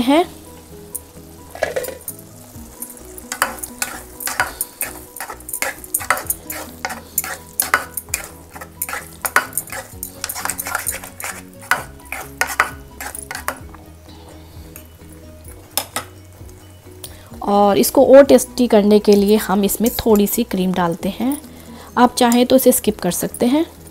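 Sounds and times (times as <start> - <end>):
thick puree simmering: 0.0 - 23.9
spatula scraping a pan: 1.5 - 13.6.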